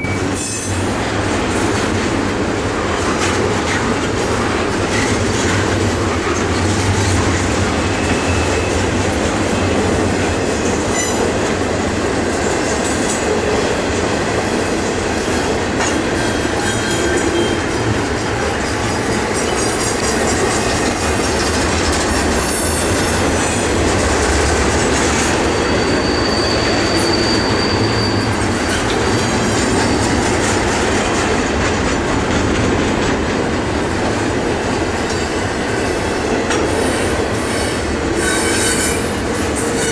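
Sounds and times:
steel wheels rumbling on rail: 0:00.0 - 0:39.9
high wheel squeals: 0:07.8 - 0:09.1, 0:16.2 - 0:17.8, 0:18.6 - 0:23.8, 0:24.7 - 0:30.2, 0:37.5 - 0:39.9.

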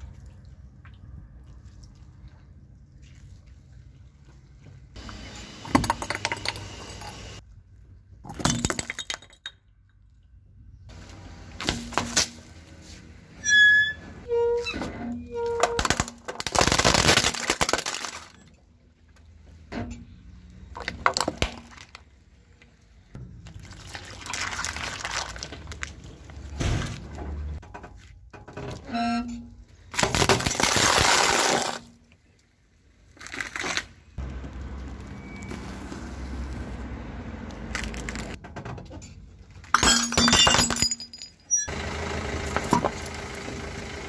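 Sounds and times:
tyre crushing plastic: 0:15.6 - 0:18.4, 0:29.9 - 0:32.0.

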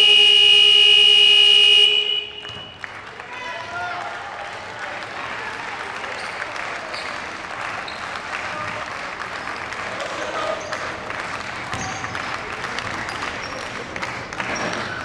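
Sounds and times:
scattered applause: 0:02.4 - 0:15.0.

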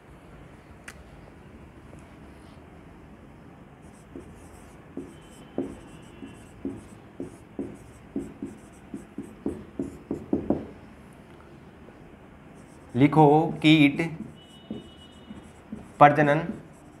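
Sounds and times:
chalk scratching on board: 0:03.9 - 0:10.4, 0:12.6 - 0:17.0.

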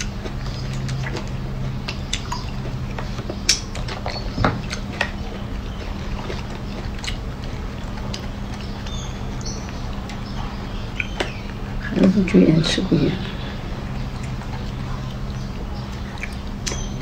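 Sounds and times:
monkey chewing wet smacks: 0:00.0 - 0:11.9
steady low hum: 0:00.0 - 0:17.0.

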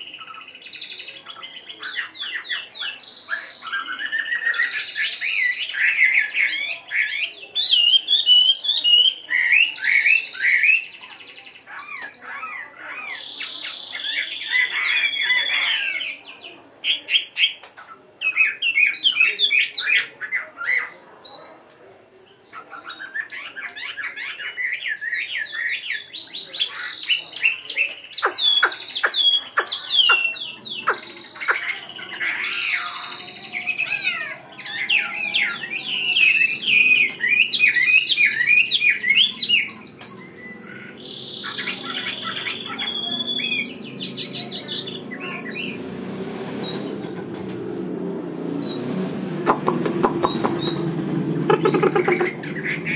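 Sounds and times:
bird singing whistles and trills: 0:00.0 - 0:17.6, 0:22.4 - 0:45.8, 0:50.0 - 0:50.9.

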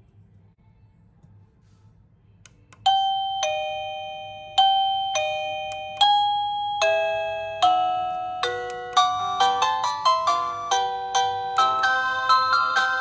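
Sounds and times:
doorbell ding-dong chime: 0:02.9 - 0:13.0.

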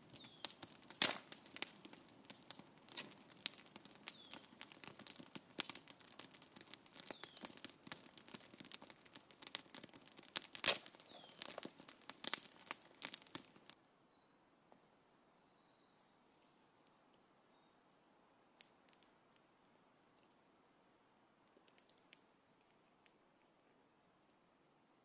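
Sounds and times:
crackling and rustling: 0:00.0 - 0:13.8, 0:21.4 - 0:24.4
loud snap: 0:01.0 - 0:01.3.

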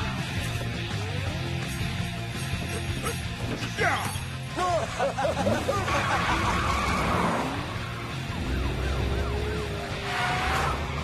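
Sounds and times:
warbling police siren: 0:06.1 - 0:11.0.

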